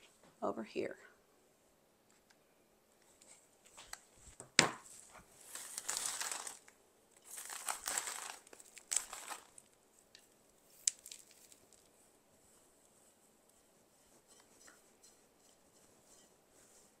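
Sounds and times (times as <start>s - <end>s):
crinkling of dry craft materials: 3.0s - 14.6s.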